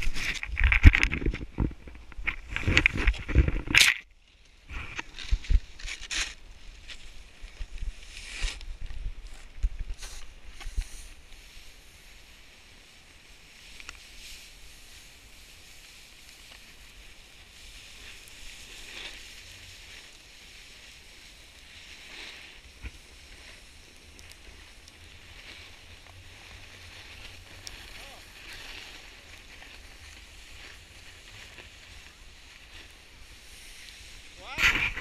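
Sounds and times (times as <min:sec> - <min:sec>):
wind rumble on microphone: 0:00.0 - 0:03.8, 0:22.7 - 0:35.0
snowboard scraping over snow: 0:04.6 - 0:35.0.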